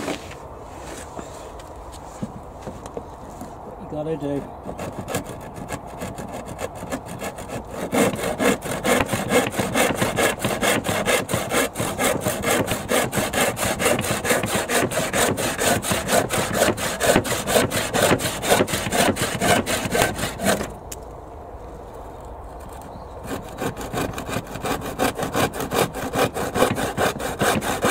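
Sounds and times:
handsaw cutting wood: 4.6s - 20.8s, 22.6s - 27.9s.

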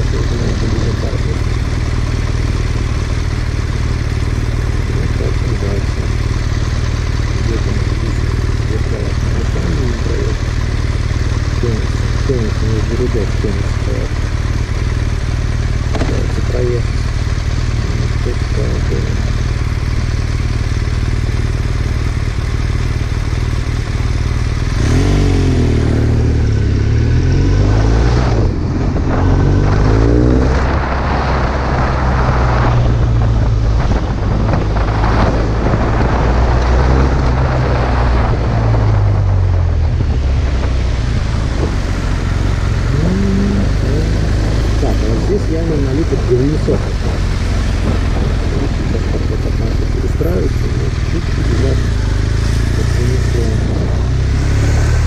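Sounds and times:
motorcycle engine revving: 0.0s - 55.0s
wind noise on microphone: 27.6s - 51.8s.

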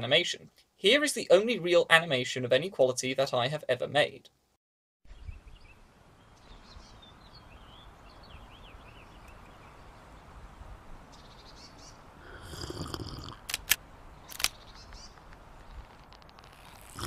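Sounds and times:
birds chirping: 5.1s - 13.0s, 14.5s - 15.8s
sharp clicks: 13.4s - 15.4s.

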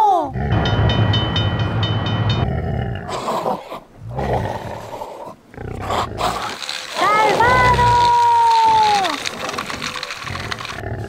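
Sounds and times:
big cat roars: 2.4s - 6.6s, 10.3s - 11.0s.

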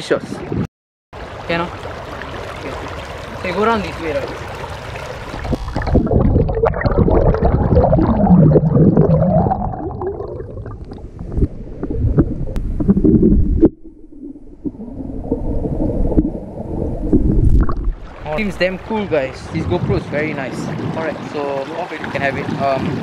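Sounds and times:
bubbles: 1.2s - 19.9s
underwater rushing water: 1.2s - 23.0s
warbling tones: 5.2s - 19.1s.

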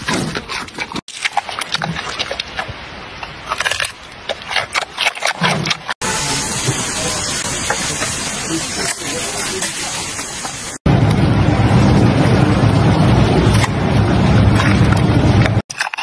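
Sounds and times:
panda crunching a carrot: 0.0s - 5.9s, 14.5s - 16.0s
noisy background: 6.0s - 15.6s.

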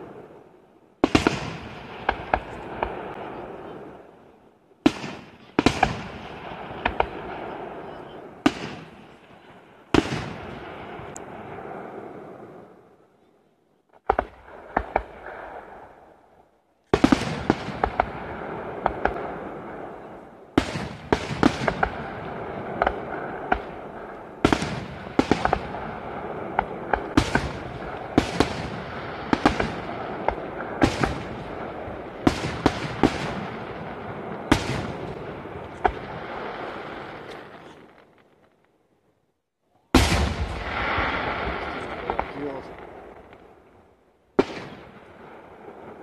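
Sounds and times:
firework bangs and crackles: 0.0s - 13.0s, 13.9s - 16.3s, 16.9s - 39.0s, 39.9s - 46.0s
rumbling echo: 40.0s - 46.0s.

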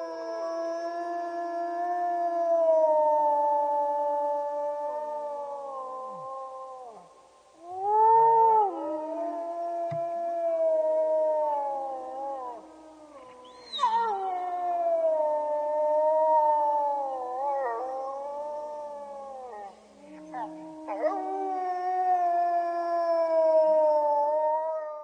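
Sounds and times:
wolves howling: 0.0s - 25.0s.

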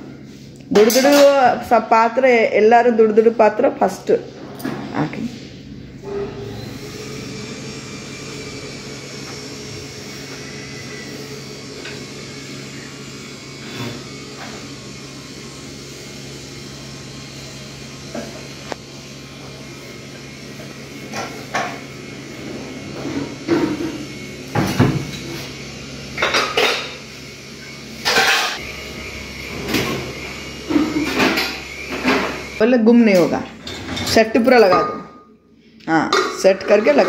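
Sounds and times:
kitchenware clattering and knocking: 26.2s - 27.0s.

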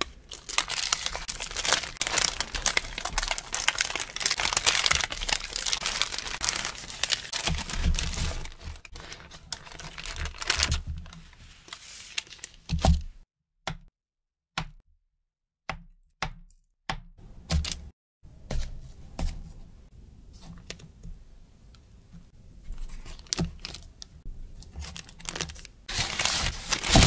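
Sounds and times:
parchment paper crinkling: 0.0s - 12.8s, 22.6s - 27.0s.

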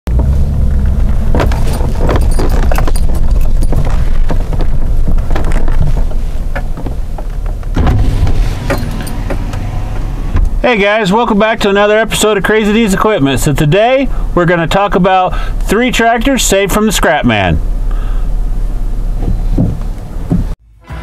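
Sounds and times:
pickup engine running low: 0.1s - 20.6s
tyres crunching on gravel: 0.2s - 12.3s.

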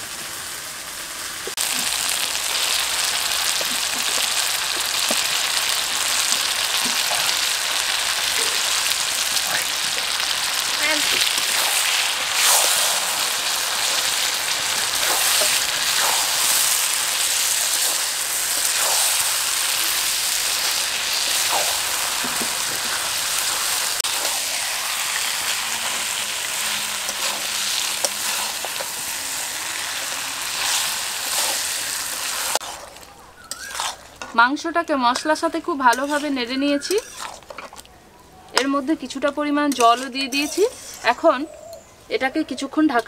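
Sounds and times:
meat sizzling in hot oil: 0.0s - 34.3s
spatula scraping pan: 9.5s - 34.5s, 35.1s - 37.8s, 39.7s - 41.2s.

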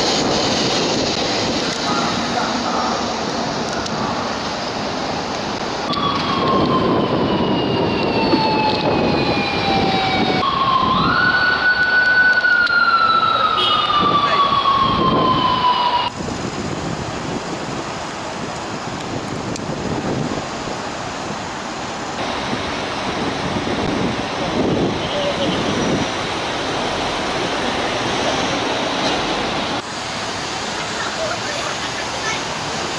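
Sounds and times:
street traffic: 0.0s - 32.9s
police siren wailing: 5.8s - 16.2s.

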